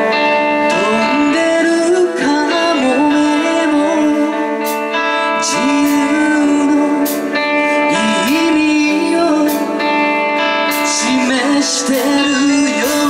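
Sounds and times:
lead line of held notes: 0.0s - 13.0s
live band playing slow song: 0.0s - 13.0s.

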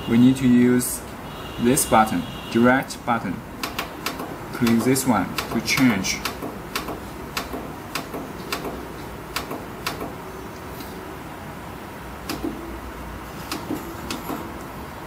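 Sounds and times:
push buttons clicking: 3.6s - 10.2s, 12.2s - 12.6s.

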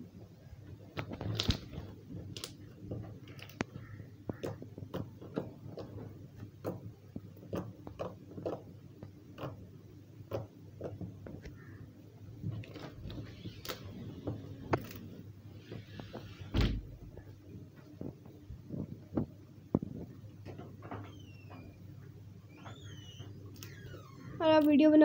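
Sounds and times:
thump: 16.5s - 16.9s.

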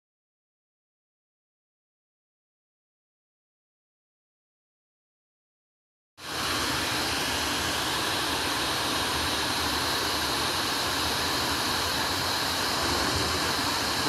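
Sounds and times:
radio static hiss: 12.6s - 14.0s.

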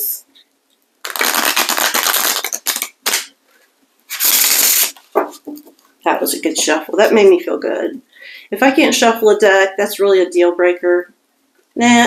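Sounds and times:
cards being riffle-shuffled: 1.0s - 3.3s, 4.1s - 5.4s.

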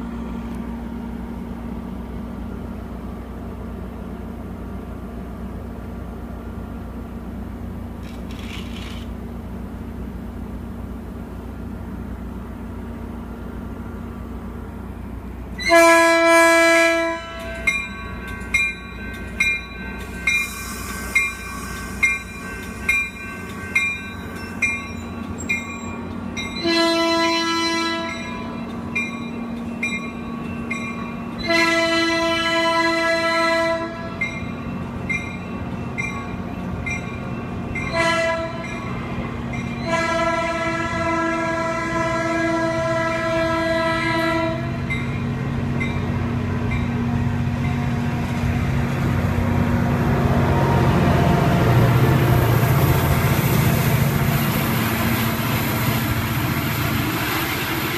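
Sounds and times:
rumble of passing train cars: 0.0s - 57.9s
train horn blasts: 15.6s - 17.8s, 26.6s - 28.6s, 31.4s - 34.3s, 37.9s - 38.8s, 39.8s - 45.0s
bell ringing steadily: 17.6s - 26.6s, 28.1s - 31.4s.

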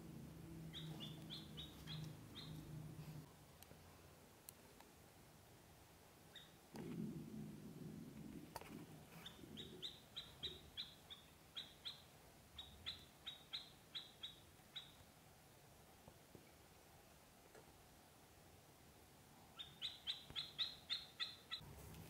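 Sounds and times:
ducklings peeping: 0.7s - 2.8s, 9.2s - 15.0s, 19.6s - 21.6s.

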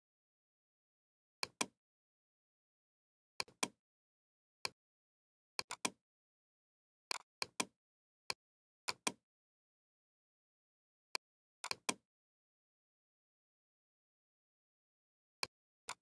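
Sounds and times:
computer mouse clicks: 3.4s - 3.8s, 5.6s - 6.0s, 8.9s - 9.2s, 11.6s - 12.0s.

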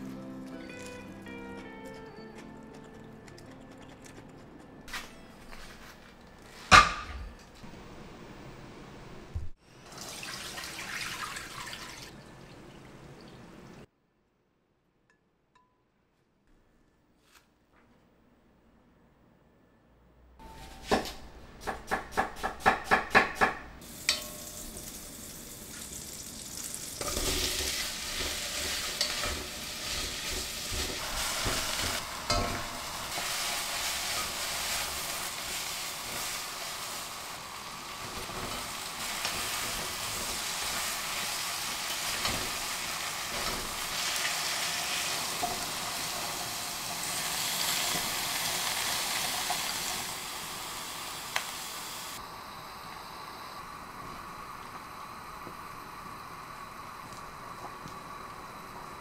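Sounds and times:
onions sizzling in a pot: 0.0s - 1.4s, 23.8s - 59.0s.

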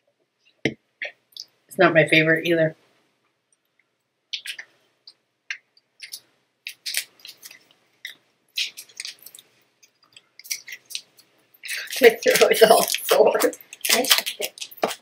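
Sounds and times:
plastic wrapper crinkling: 6.0s - 15.0s.

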